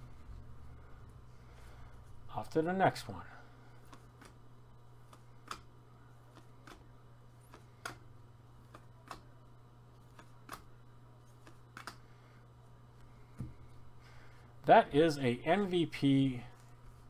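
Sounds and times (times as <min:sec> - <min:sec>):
low steady hum: 0:00.0 - 0:17.0
cards clicking as flipped: 0:03.8 - 0:04.4, 0:05.0 - 0:05.7, 0:06.3 - 0:08.0, 0:08.6 - 0:09.3, 0:10.0 - 0:10.7, 0:11.3 - 0:12.0.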